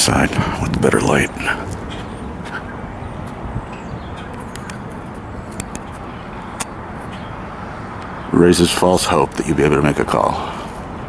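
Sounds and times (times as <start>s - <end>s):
distant road traffic hum: 0.0s - 11.0s
faint clicks: 3.2s - 6.8s.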